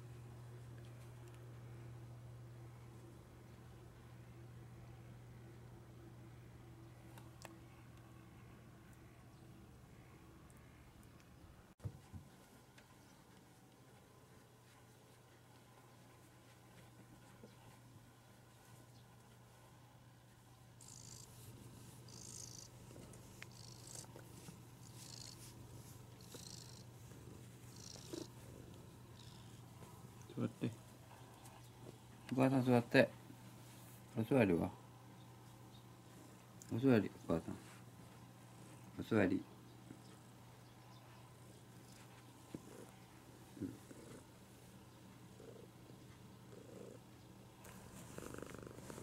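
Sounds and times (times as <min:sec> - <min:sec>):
cat purring: 0:20.8 - 0:32.2, 0:35.8 - 0:49.0.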